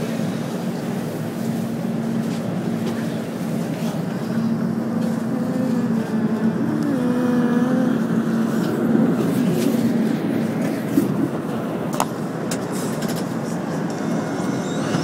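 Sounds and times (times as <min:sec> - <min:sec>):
train electrical hum: 0:00.0 - 0:15.0
gliding whining tone: 0:13.4 - 0:15.0.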